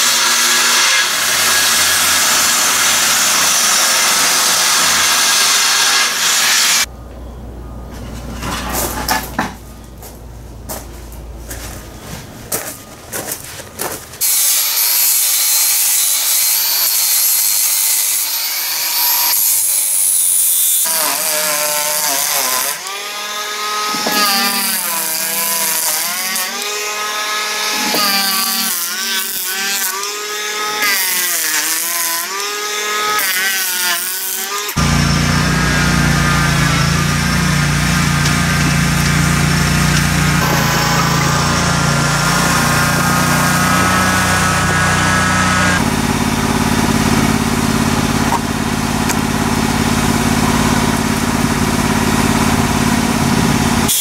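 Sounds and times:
electric planer shaving wood: 0.0 - 6.9, 14.2 - 54.0
riding mower engine running: 34.8 - 53.9.

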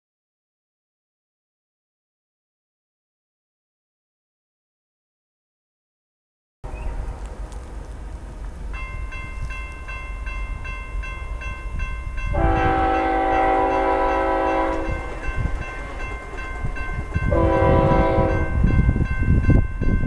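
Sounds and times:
railroad crossing bell ringing: 8.5 - 20.0
locomotive air horn blast: 12.3 - 15.0, 17.3 - 18.6.

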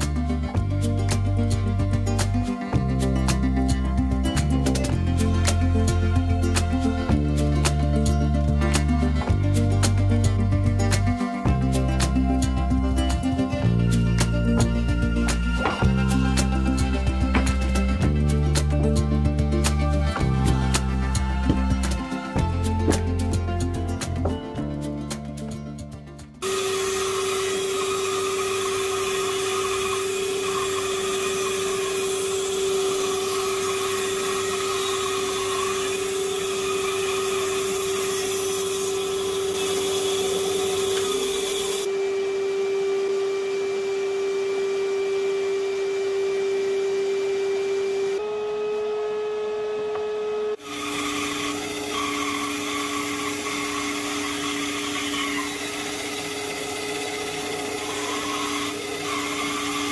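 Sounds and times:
band saw cutting wood: 0.0 - 25.7, 26.4 - 42.0, 45.0 - 59.9.

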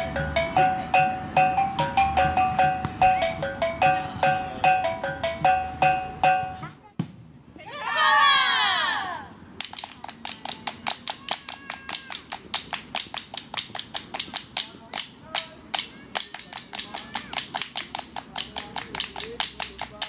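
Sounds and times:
hands clapping: 9.6 - 20.0.

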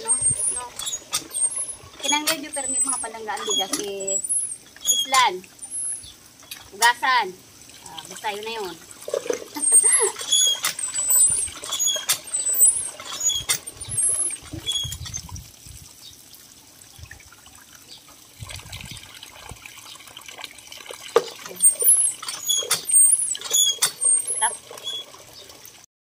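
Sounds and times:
metal knocks from pump and lid: 9.1 - 9.6
water splashing into pot: 17.0 - 25.5.

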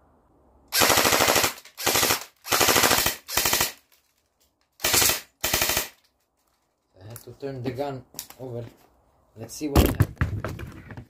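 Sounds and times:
airsoft rifle automatic bursts: 0.7 - 3.8, 4.8 - 6.0.

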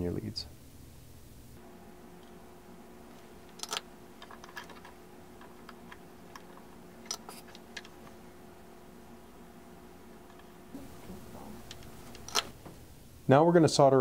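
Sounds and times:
faint steady hum: 0.0 - 14.0
light clicks and knocks of handling: 3.2 - 8.2.

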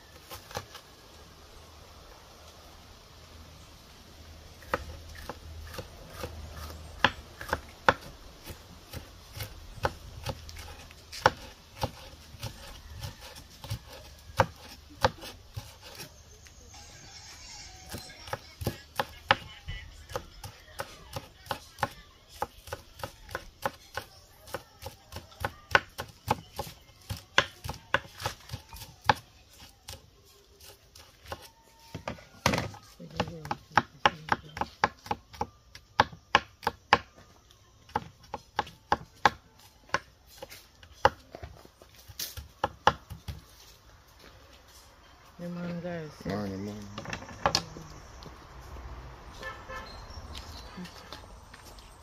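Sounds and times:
knife chopping on wooden board: 4.6 - 16.1, 17.9 - 19.5, 20.1 - 30.0, 30.6 - 37.2, 37.9 - 41.3, 42.2 - 43.4.

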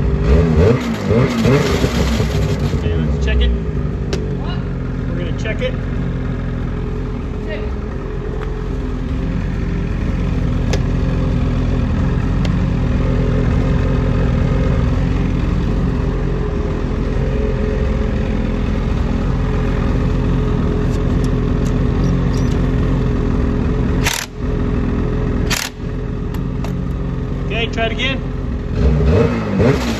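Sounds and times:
snowmobile engine running: 4.3 - 25.8.

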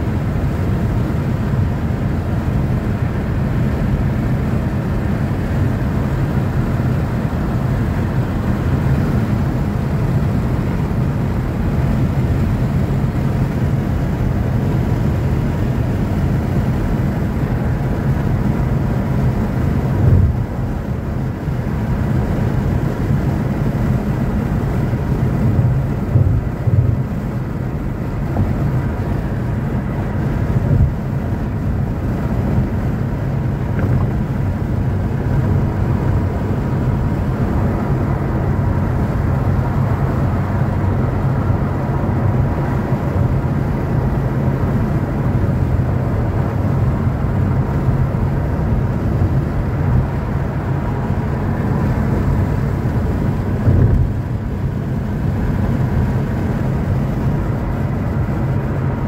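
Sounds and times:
road and engine noise in car: 0.0 - 59.0.

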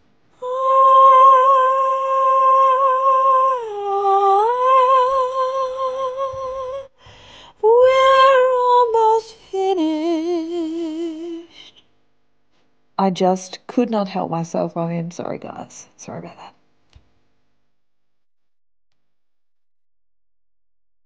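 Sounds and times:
woman singing high notes: 0.4 - 6.9, 7.6 - 11.8.

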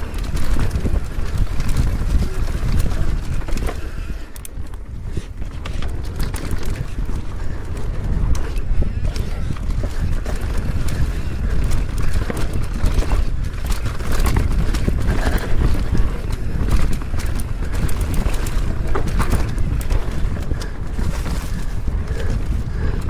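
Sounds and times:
bike rattling: 0.0 - 23.0
bike tyres clattering over rocks: 0.0 - 23.0
wind rumble on microphone: 0.0 - 23.0.

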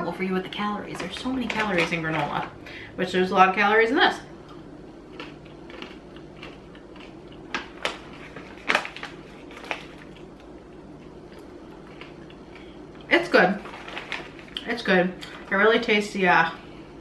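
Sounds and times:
granola being chewed: 4.4 - 15.3.

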